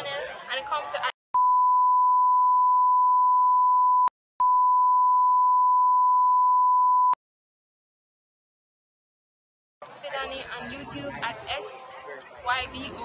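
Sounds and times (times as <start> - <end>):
censor beep tone: 1.4 - 7.2
speech: 9.8 - 13.0.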